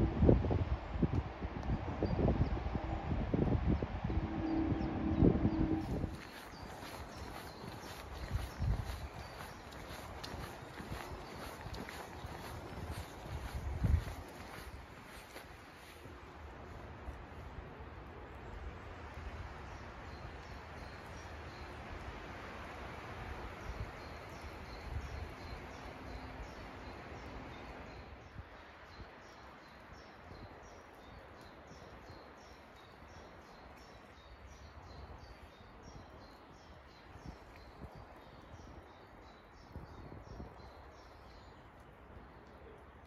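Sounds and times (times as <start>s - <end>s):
outdoor background hiss: 0.0s - 37.3s
low rumble: 1.6s - 6.3s
small birds chirping: 5.5s - 16.0s, 23.5s - 43.0s.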